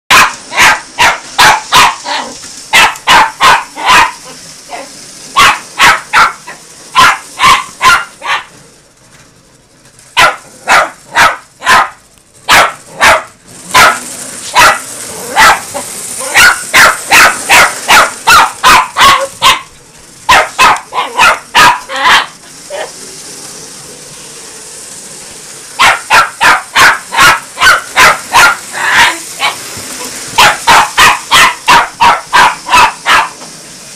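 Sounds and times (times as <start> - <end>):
small dog yapping: 0.1 - 4.2, 5.4 - 6.4, 7.0 - 8.5, 10.2 - 19.7, 20.3 - 22.9, 25.8 - 29.6, 30.4 - 33.4.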